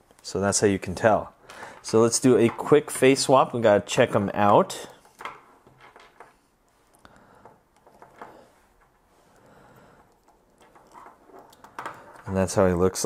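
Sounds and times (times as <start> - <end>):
plastic parts clicking and tapping: 4.4 - 6.4, 7.4 - 9.0, 10.0 - 12.6.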